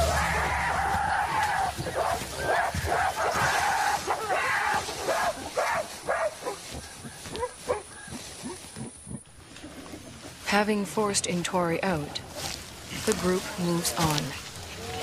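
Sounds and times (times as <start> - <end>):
gorillas calling aggressively: 0.0 - 9.2.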